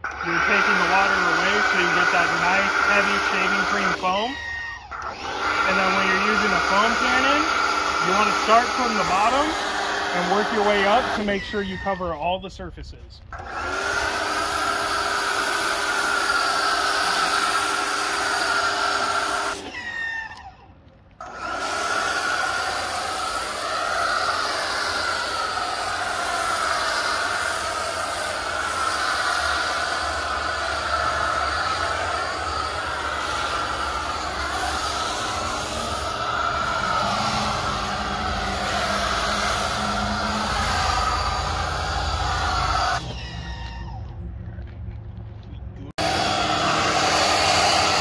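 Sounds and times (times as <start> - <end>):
pressure washer pump droning: 0.0 - 20.6, 21.2 - 44.0, 46.0 - 48.0
foam spray hissing: 0.1 - 11.9, 13.7 - 20.3, 21.2 - 43.0, 46.0 - 48.0.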